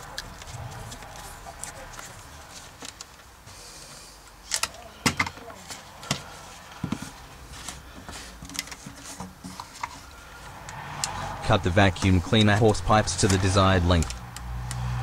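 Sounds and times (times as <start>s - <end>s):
clicks and knocks of handled plastic: 4.5s - 10.1s.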